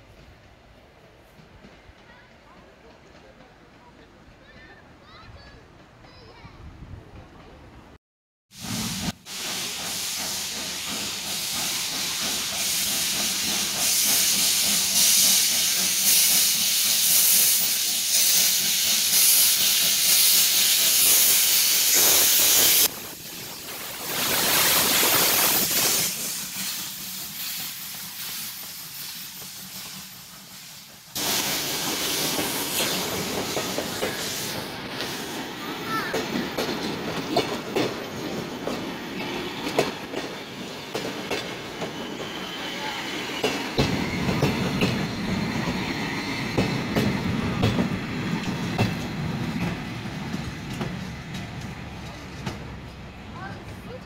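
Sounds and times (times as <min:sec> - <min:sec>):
train coaches rolling past: 0:00.0 - 0:08.0, 0:08.6 - 0:54.0
steam hissing: 0:08.5 - 0:51.4
steam locomotive starting: 0:08.5 - 0:53.5.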